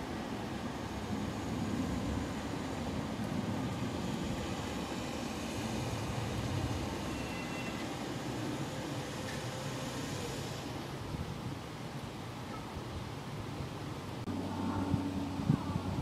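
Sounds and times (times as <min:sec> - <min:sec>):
train slowing with low rumble: 0:00.0 - 0:11.8.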